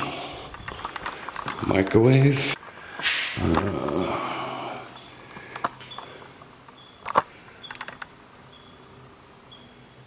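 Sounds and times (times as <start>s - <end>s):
faint high chirp: 6.8s - 7.0s, 8.5s - 10.0s.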